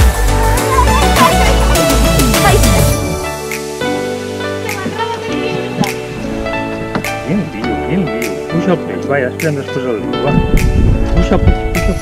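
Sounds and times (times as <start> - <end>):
music with heavy bass: 0.0 - 4.0.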